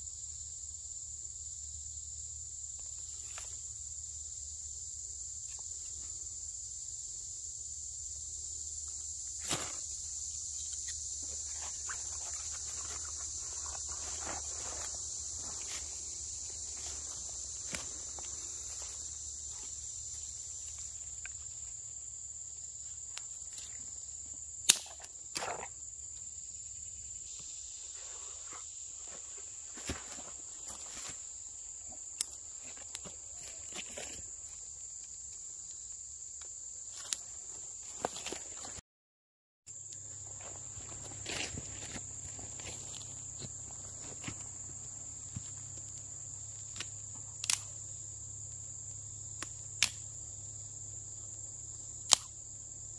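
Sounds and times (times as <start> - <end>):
insects buzzing: 0.0 - 38.8, 39.7 - 52.9
twigs snapping on campfire: 24.7 - 25.6, 45.7 - 47.7, 49.4 - 50.1, 52.0 - 52.3.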